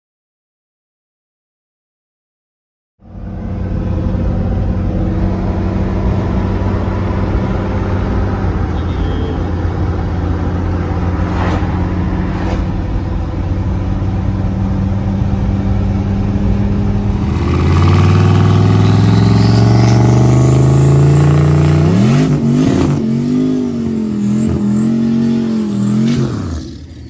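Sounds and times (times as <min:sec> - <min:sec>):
car engine accelerating: 0:03.0 - 0:27.0
turbo whistle: 0:08.8 - 0:09.6.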